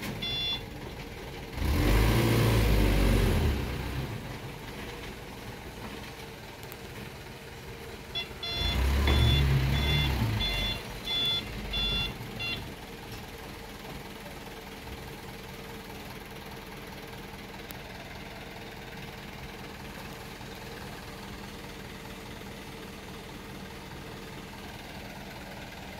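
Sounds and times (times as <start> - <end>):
reversing alarm beeps: 0.2 - 0.6, 8.2 - 12.7
truck diesel engine revving: 1.4 - 5.7, 7.7 - 12.8.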